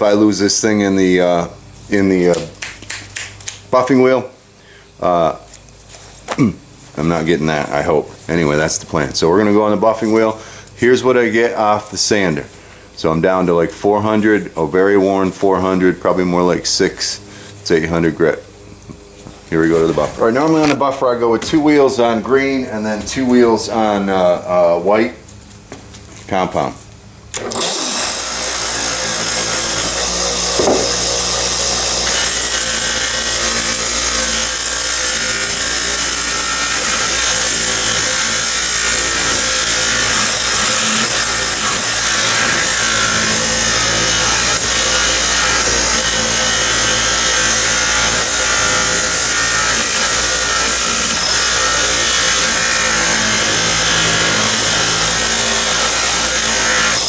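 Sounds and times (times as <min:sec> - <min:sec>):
bench buffer motor hum: 0:27.2 - 0:57.0
blade hissing on buffing wheel: 0:27.4 - 0:57.0.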